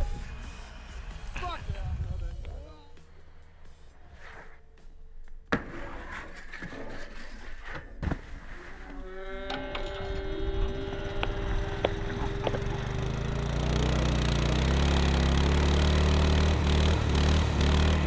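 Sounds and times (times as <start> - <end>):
low engine-like drone: 0.0 - 4.5, 9.1 - 18.0
high sustained tone: 9.2 - 13.4.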